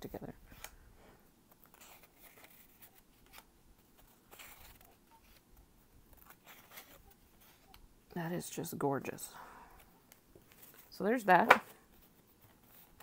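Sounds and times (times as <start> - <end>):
paper sheets rustling: 1.5 - 7.8, 10.0 - 13.0.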